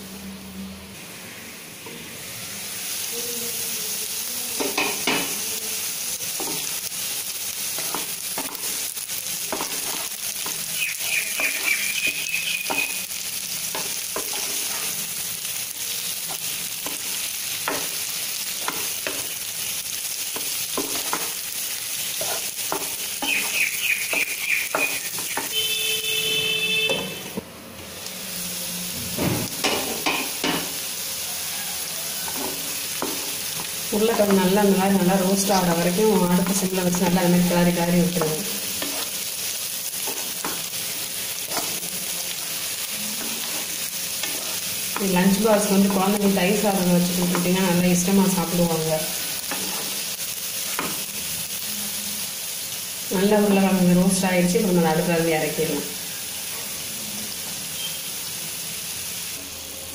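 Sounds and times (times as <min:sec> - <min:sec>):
potatoes sizzling in oil: 0:00.0 - 0:59.9
spatula knocking and scraping pan: 0:07.8 - 0:08.7, 0:09.5 - 0:10.6, 0:13.7 - 0:14.9, 0:20.3 - 0:21.4, 0:22.2 - 0:25.7, 0:29.5 - 0:30.8, 0:32.3 - 0:34.5, 0:43.2 - 0:45.2, 0:49.5 - 0:50.0.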